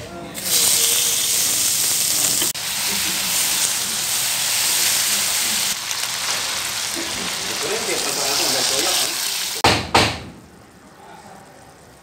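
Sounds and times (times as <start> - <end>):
meat sizzling in a pan: 0.4 - 9.6.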